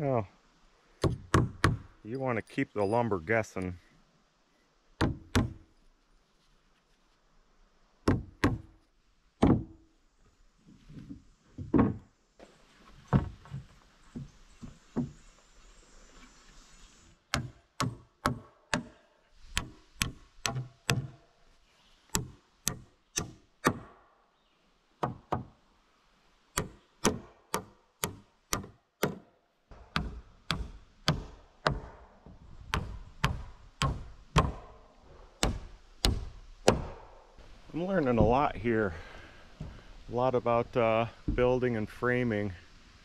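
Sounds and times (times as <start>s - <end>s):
hammer driving nails into wood: 17.3s - 18.9s, 19.5s - 21.2s, 26.6s - 29.2s, 29.8s - 32.0s, 32.7s - 34.7s, 35.4s - 37.1s.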